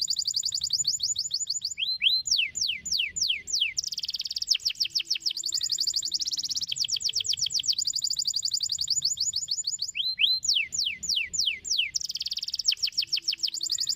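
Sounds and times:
canary singing trills: 0.0 - 13.9.

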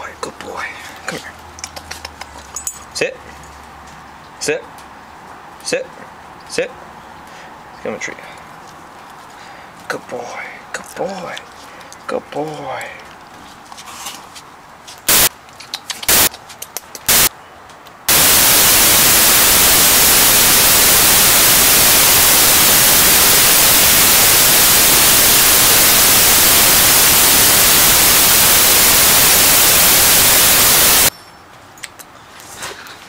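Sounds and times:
loud white-noise static: 15.1 - 15.3, 16.1 - 16.3, 17.1 - 17.3, 18.1 - 31.1.

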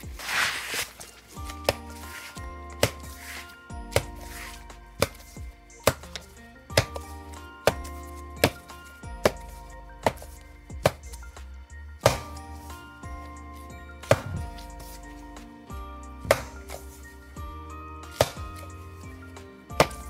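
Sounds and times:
background music: 0.0 - 20.0.

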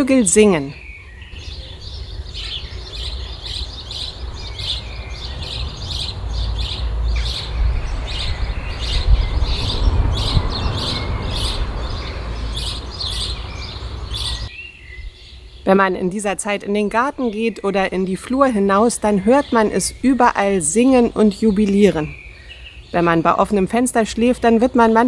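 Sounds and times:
songbirds chirping and trilling: 0.0 - 25.0
steady rushing noise: 3.8 - 14.5.

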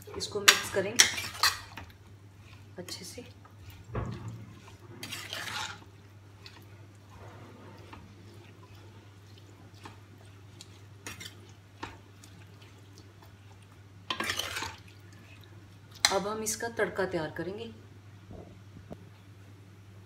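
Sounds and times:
ladle scraping and clinking pan: 0.1 - 1.9, 3.6 - 5.9, 14.1 - 14.9
wet food squishing: 0.9 - 16.2.

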